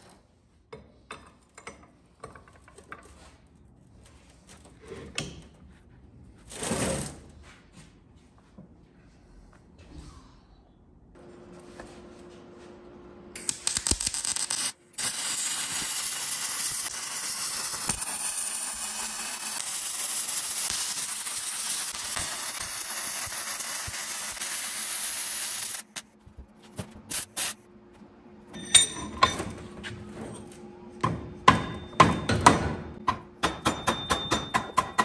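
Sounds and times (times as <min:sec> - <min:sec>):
welding arc crackling: 0:13.4 - 0:26.0.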